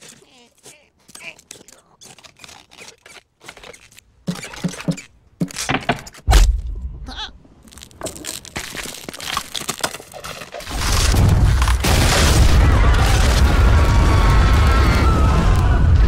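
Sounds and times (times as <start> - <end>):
ice cracking and crunching: 7.6 - 14.6.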